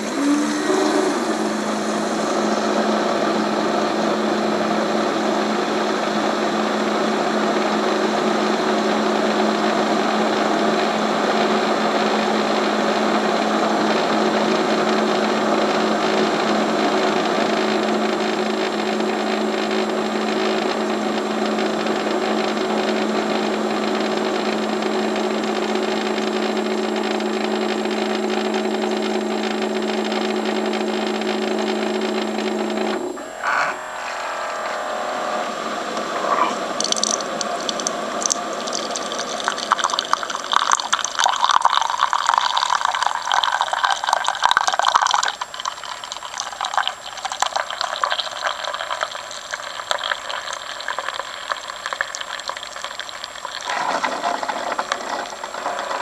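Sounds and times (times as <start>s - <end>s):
coffee maker humming: 0.0s - 56.0s.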